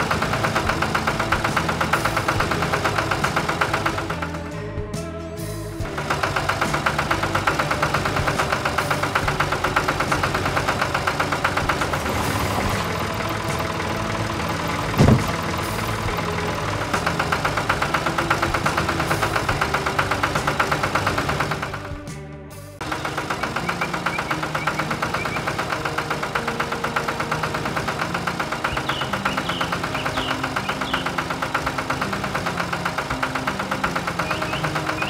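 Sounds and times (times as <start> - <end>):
cartoon tractor engine chugging: 0.0 - 35.0
short thud: 15.0 - 15.4.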